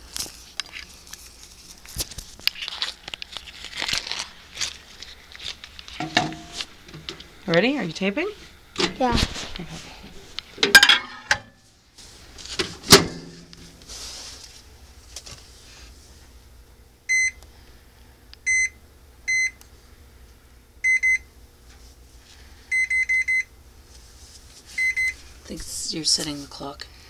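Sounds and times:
keypad beeps: 17.1 - 17.4, 20.9 - 21.2.

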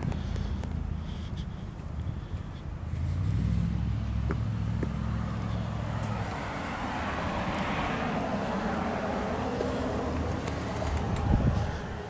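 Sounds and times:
tyre and road noise: 0.0 - 12.0
vehicle engine hum: 0.0 - 12.0.

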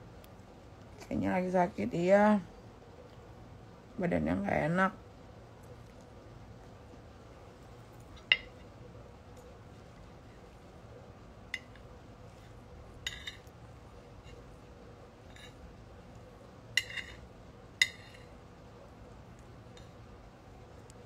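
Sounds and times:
cutlery clinking against a plate: 8.2 - 8.7, 11.5 - 11.9, 13.0 - 13.5, 15.2 - 15.6, 16.7 - 18.3, 19.7 - 20.0.

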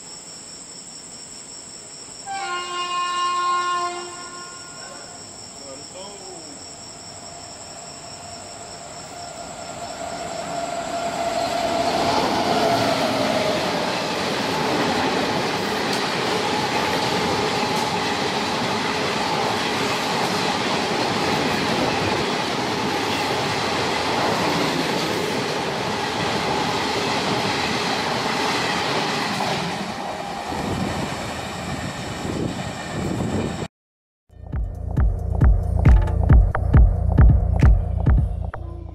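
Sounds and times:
train passing at full speed: 3.8 - 33.7.

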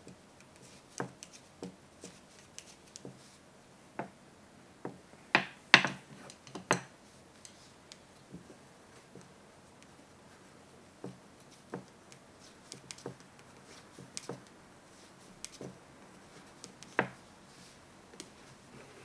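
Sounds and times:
wooden knitting needles clicking: 11.0 - 14.6, 15.4 - 17.2.

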